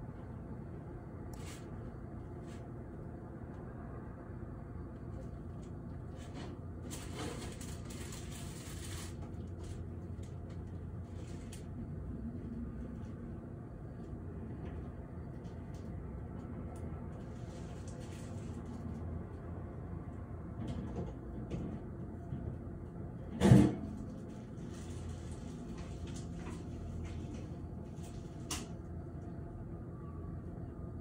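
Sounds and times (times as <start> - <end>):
distant city traffic rumble: 0.0 - 31.0.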